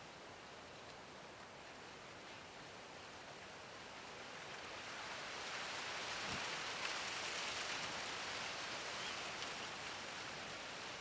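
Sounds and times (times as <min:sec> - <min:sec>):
soft outdoor hiss: 0:00.0 - 0:11.0
faint ticks: 0:00.8 - 0:01.5.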